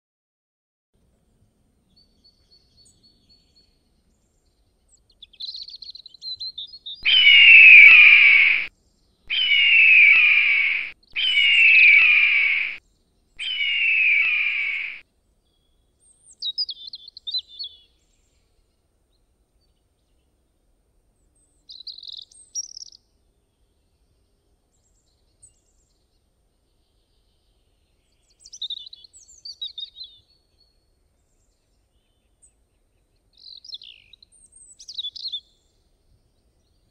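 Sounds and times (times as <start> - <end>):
eagle chittering calls: 7.0 - 8.7, 9.3 - 12.8, 13.4 - 15.0
eagle screaming: 7.0 - 8.7, 9.3 - 12.8, 13.4 - 15.0.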